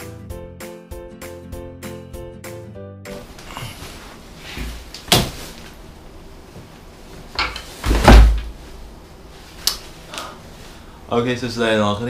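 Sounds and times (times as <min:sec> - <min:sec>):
backpack knocks and thumps: 0:04.6 - 0:05.5, 0:07.8 - 0:08.6.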